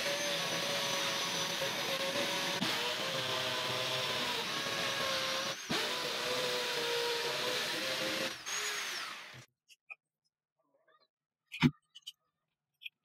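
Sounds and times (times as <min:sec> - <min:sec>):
electric drill boring into wall: 0:00.0 - 0:09.5.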